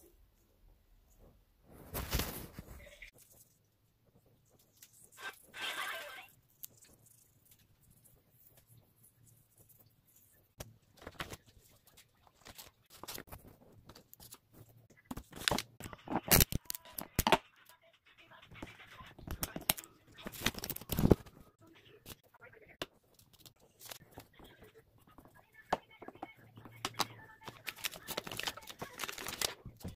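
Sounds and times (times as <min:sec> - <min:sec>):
paper rustling and crinkling: 0:01.8 - 0:03.4, 0:10.8 - 0:17.2, 0:19.2 - 0:21.4, 0:23.2 - 0:24.4, 0:26.9 - 0:29.9.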